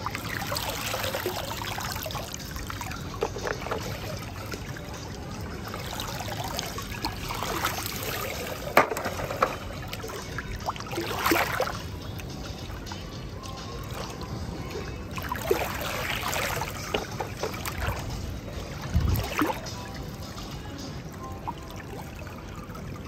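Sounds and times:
water pouring and dripping: 0:00.0 - 0:13.0, 0:15.1 - 0:20.2
small water splashes: 0:00.0 - 0:23.0.

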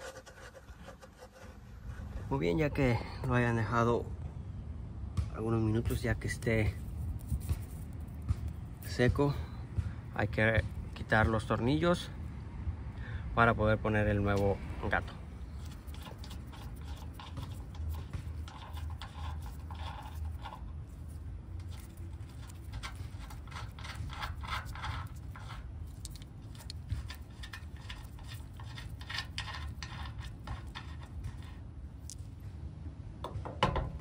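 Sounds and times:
low steady rumble: 0:00.0 - 0:34.0
metallic scrapes and clicks of bolts: 0:14.3 - 0:32.3.

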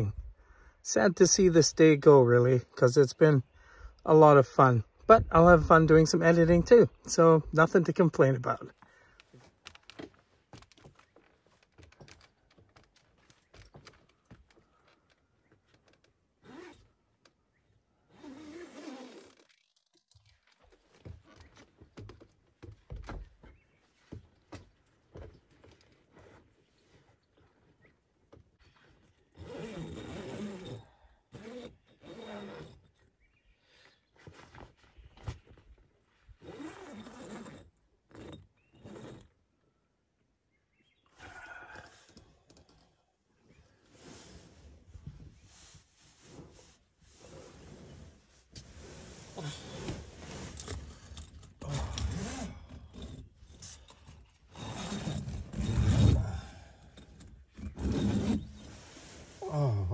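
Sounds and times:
tent door zipping: 0:16.4 - 0:17.0, 0:18.1 - 0:19.9, 0:29.3 - 0:32.8, 0:36.4 - 0:39.2, 0:43.9 - 0:44.9, 0:46.2 - 0:52.6, 0:54.5 - 0:56.4, 0:57.6 - 0:59.6
tent fabric rustling: 0:18.2 - 0:19.8, 0:28.8 - 0:30.8, 0:34.2 - 0:37.6, 0:43.8 - 0:51.1, 0:57.9 - 0:59.5.

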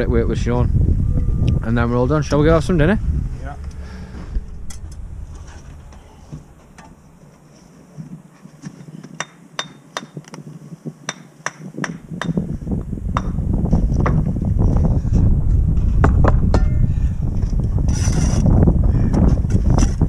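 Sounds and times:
low rumble: 0:00.0 - 0:08.0, 0:12.4 - 0:20.0.

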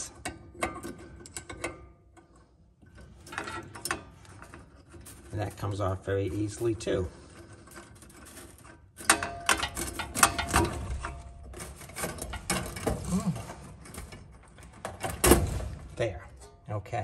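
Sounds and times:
metallic clicks and scrapes: 0:00.0 - 0:16.8
metal clank: 0:07.2 - 0:16.7.

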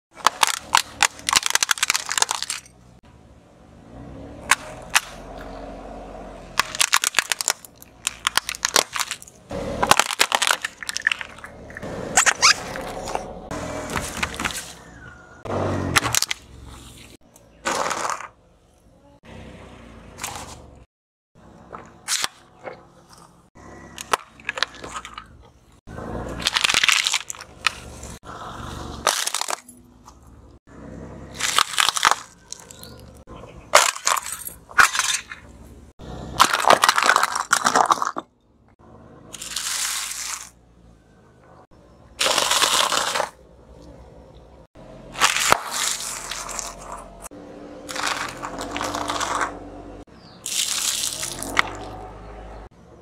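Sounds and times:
car tyre crushing wrapped snacks: 0:00.2 - 0:02.8, 0:06.6 - 0:13.3, 0:13.9 - 0:14.8, 0:17.6 - 0:18.4, 0:23.9 - 0:25.4, 0:26.3 - 0:28.2, 0:29.0 - 0:29.8, 0:31.3 - 0:35.1, 0:36.3 - 0:38.3, 0:39.3 - 0:40.6, 0:42.1 - 0:43.5, 0:45.1 - 0:47.2, 0:47.8 - 0:49.7, 0:50.4 - 0:52.0.

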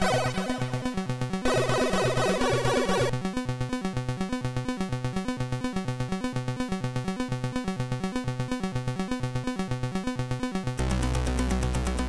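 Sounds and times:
chiptune synthesizer music: 0:00.0 - 0:03.2, 0:10.8 - 0:12.0.

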